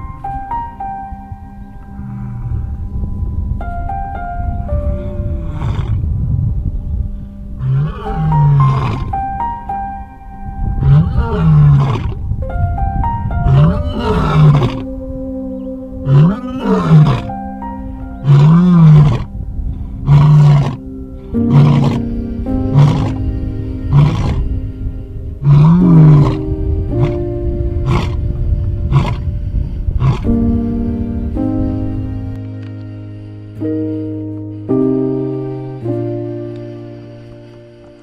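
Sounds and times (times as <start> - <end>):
background music with held notes: 0.0 - 38.0
lion roaring: 5.4 - 6.0, 7.6 - 9.2, 10.8 - 12.2, 13.5 - 14.9, 16.0 - 17.3, 18.2 - 19.3, 19.9 - 20.8, 21.4 - 22.0, 22.7 - 23.2, 23.9 - 24.5, 25.4 - 28.2, 28.8 - 30.3.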